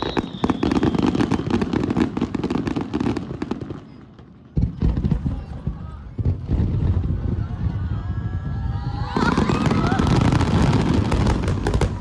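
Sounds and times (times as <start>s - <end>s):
falling firework whistle: 0.0s - 2.6s, 7.8s - 12.0s
fireworks crackling: 0.0s - 12.0s
heavy firework boom: 4.5s - 12.0s.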